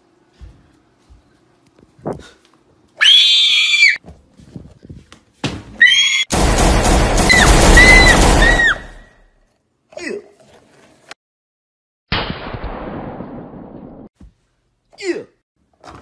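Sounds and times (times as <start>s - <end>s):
high-pitched screaming: 3.0s - 4.0s, 7.3s - 9.1s.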